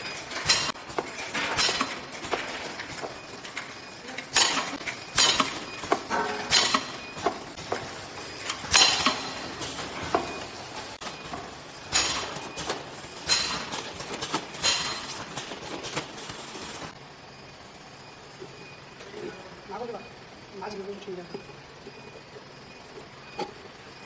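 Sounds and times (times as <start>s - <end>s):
machinery clattering: 0.0s - 17.0s.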